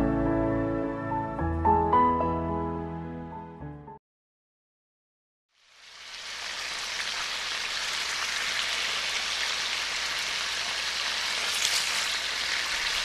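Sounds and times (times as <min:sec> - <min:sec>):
steady rain-like hiss: 0:05.6 - 0:13.0.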